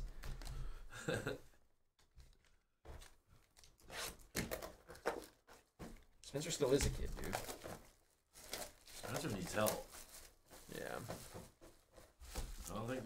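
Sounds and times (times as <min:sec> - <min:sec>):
cardboard rustling: 0:02.3 - 0:13.0
plastic wrap crinkling: 0:04.8 - 0:11.4.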